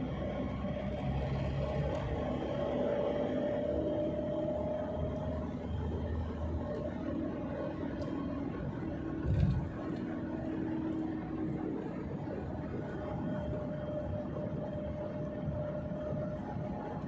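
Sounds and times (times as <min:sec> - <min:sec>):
car engine and tyre hum: 0:00.0 - 0:17.0.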